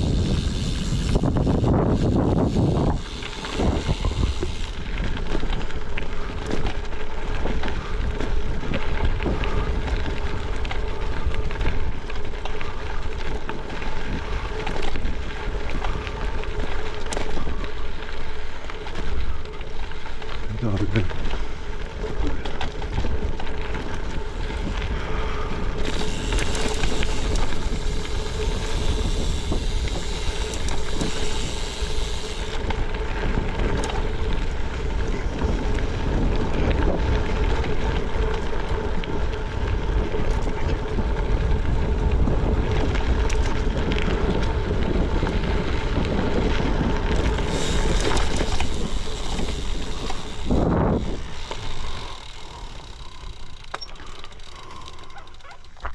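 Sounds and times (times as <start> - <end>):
bike rattling: 0.0 - 55.9
bike tyres rumbling on gravel: 0.0 - 55.9
wind buffeting microphone: 0.0 - 55.9.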